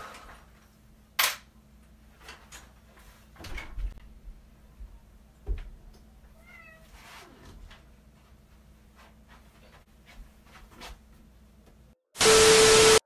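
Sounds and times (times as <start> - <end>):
cat meowing: 6.4 - 6.9.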